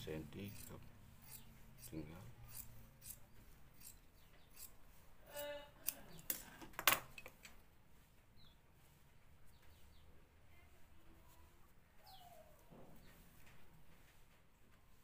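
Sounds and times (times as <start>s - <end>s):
scissors snipping fabric: 0.5s - 6.3s
faint bird chirps: 9.5s - 13.2s.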